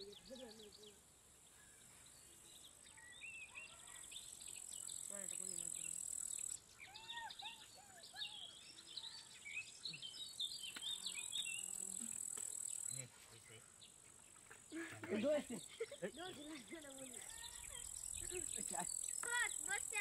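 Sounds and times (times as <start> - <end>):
insects buzzing drone: 4.2 - 6.6
short chirping calls: 17.0 - 20.0.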